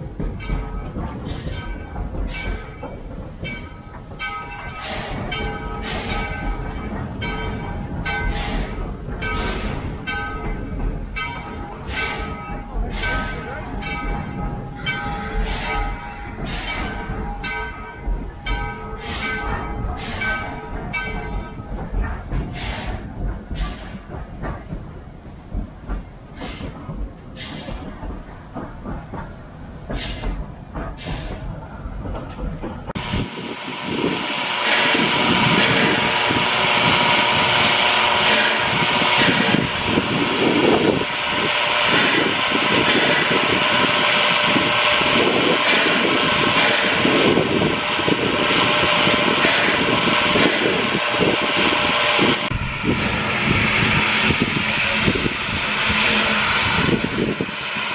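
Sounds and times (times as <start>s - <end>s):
sharp knocks and clanks: 0.0s - 33.0s, 45.2s - 48.6s
steam hissing: 4.6s - 25.1s, 25.7s - 31.8s, 33.0s - 57.9s
low rumble: 52.3s - 57.4s.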